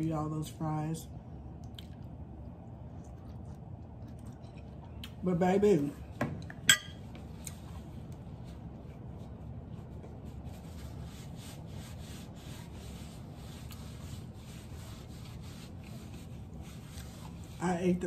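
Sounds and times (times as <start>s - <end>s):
low room hum: 0.0s - 18.0s
metal fork clinking on plate: 6.6s - 7.0s.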